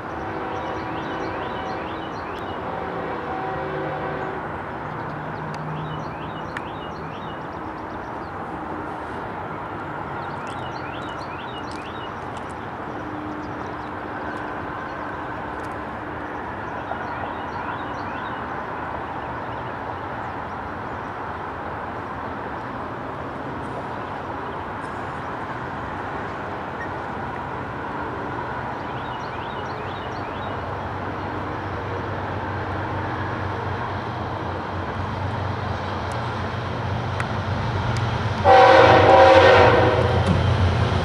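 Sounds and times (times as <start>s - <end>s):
distant freight train rumble: 0.0s - 41.0s.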